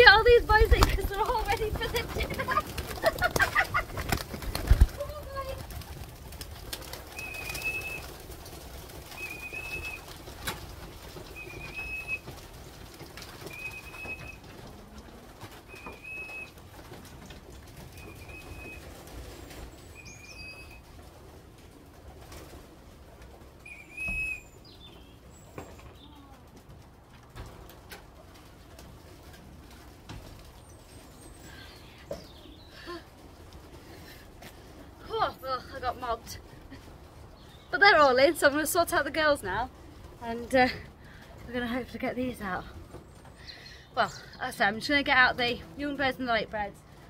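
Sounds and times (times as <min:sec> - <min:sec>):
pigeons cooing: 0:00.0 - 0:26.8
pigeon wings flapping: 0:00.0 - 0:43.5.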